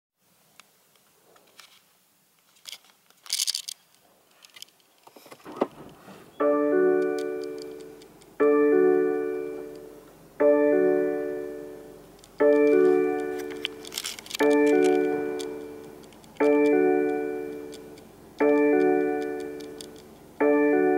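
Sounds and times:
clicks: 4.4s - 8.5s, 12.2s - 20.3s.

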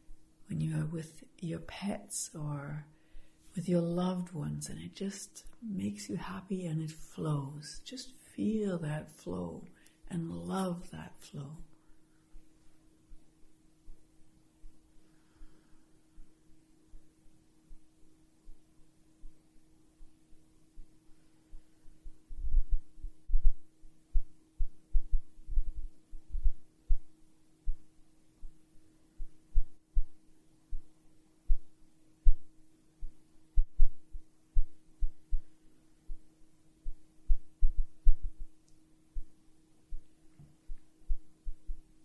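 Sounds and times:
steady low hum: 0.0s - 42.0s
heartbeat-like thumps: 21.6s - 27.1s, 29.2s - 35.5s, 36.1s - 38.6s, 39.9s - 41.9s.

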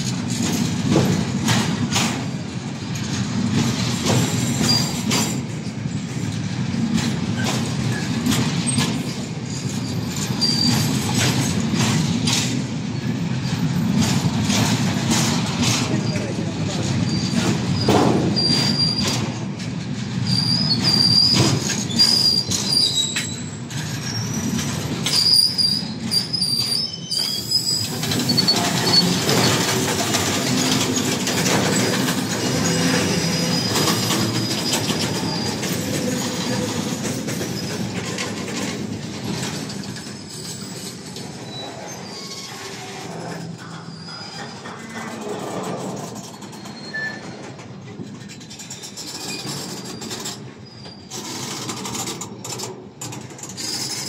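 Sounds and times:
train wheels rumbling on rails: 0.0s - 54.0s
high wheel squeals: 7.9s - 11.2s, 17.0s - 19.3s, 20.2s - 38.2s, 39.9s - 47.6s, 48.7s - 51.7s.

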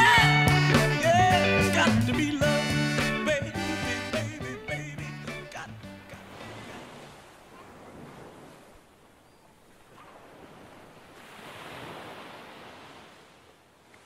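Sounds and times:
faint waves washing on shore: 5.6s - 14.0s.

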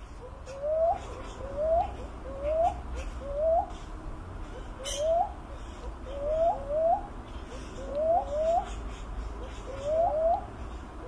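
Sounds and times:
dove cooing: 0.0s - 10.7s.

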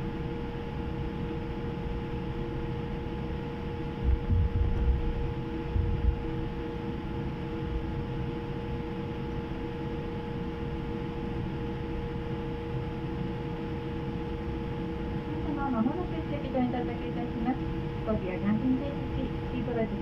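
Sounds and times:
airplane cabin hum: 0.0s - 20.0s
low thumps: 4.0s - 5.1s, 5.7s - 6.1s.

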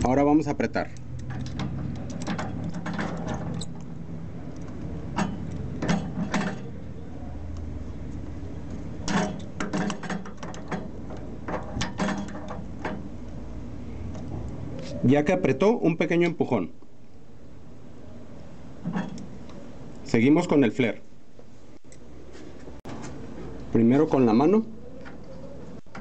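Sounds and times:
wrench clicking and scraping: 0.8s - 6.8s.

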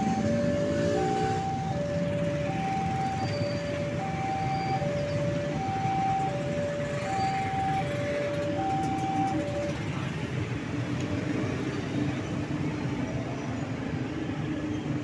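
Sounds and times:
level crossing alarm tones: 0.0s - 9.8s
low rumble of engines: 0.0s - 15.0s.

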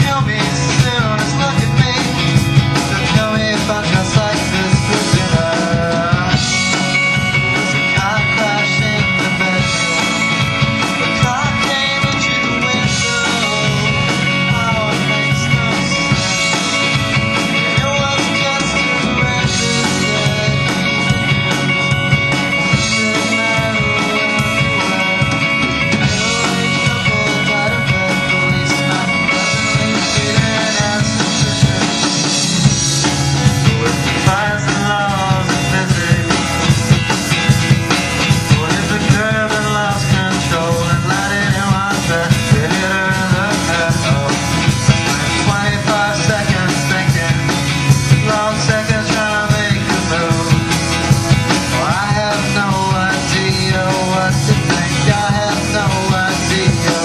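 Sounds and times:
person singing: 0.0s - 32.8s, 33.4s - 57.0s
drum kit: 0.0s - 57.0s
electric guitar: 0.0s - 57.0s
rock band playing live: 0.0s - 57.0s.

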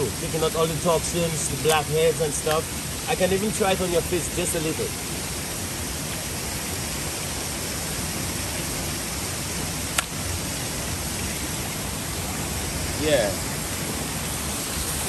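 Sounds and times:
rocky river rushing: 0.0s - 15.0s
sharp click: 10.0s - 10.2s.

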